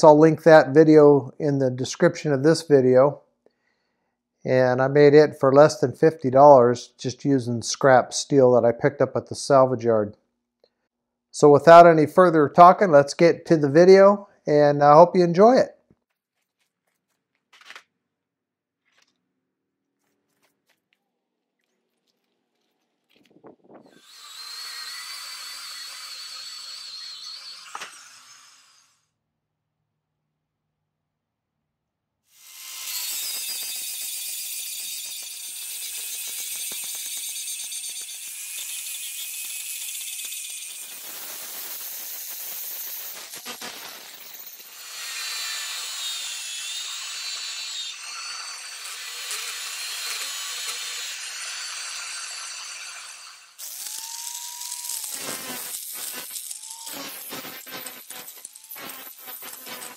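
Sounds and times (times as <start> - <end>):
power cutter whining in steel: 23.7 - 29.0, 32.4 - 59.9.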